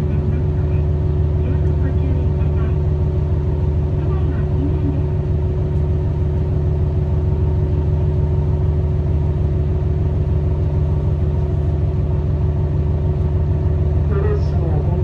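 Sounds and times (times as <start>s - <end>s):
diesel railcar engine idling: 0.0s - 15.0s.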